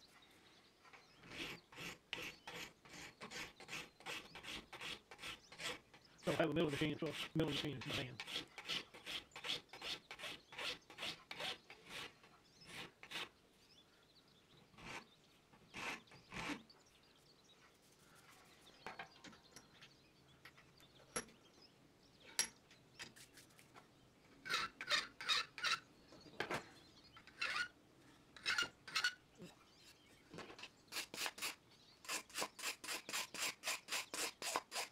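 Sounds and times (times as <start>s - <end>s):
hand file scraping metal: 1.2s - 13.3s, 24.4s - 25.9s, 27.3s - 27.7s, 28.4s - 29.2s, 30.9s - 34.9s.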